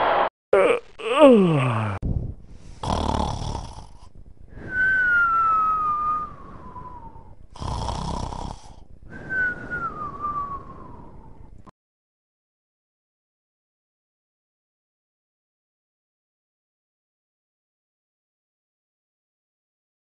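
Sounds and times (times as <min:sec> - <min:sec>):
cartoon snoring and whistling: 0:02.8 - 0:11.4.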